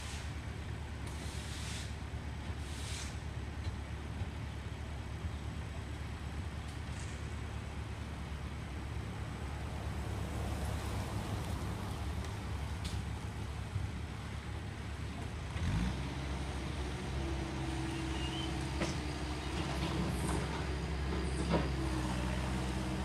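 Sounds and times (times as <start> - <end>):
vehicle engines rumbling: 0.0 - 23.0
engine drone with pitched hum: 4.4 - 23.0
pickup truck driving past: 9.0 - 14.3.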